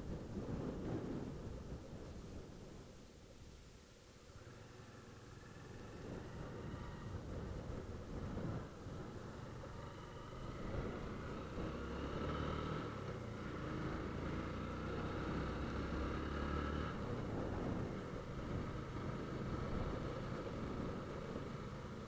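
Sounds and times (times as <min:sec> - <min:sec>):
road noise: 0:04.0 - 0:22.0
motorcycle engine running: 0:04.4 - 0:22.0.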